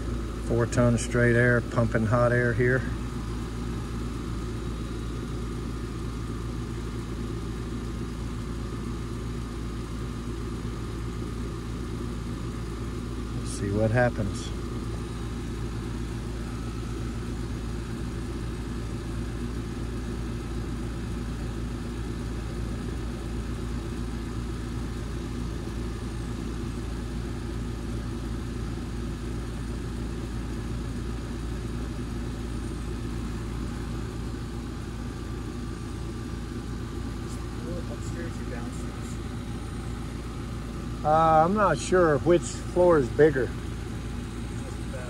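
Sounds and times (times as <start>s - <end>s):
compressor hum: 0.0s - 45.0s
condenser fan whoosh: 37.0s - 45.0s.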